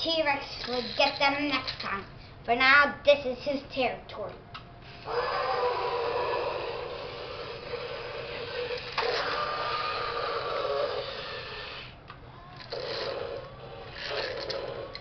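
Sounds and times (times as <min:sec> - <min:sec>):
toy gear motor whirring: 0:00.1 - 0:02.0, 0:04.9 - 0:12.0, 0:12.6 - 0:15.0.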